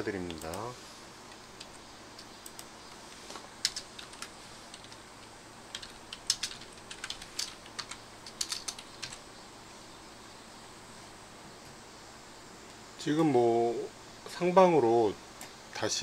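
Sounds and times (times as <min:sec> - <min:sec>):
keyboard typing: 0:00.2 - 0:00.7, 0:01.3 - 0:09.2.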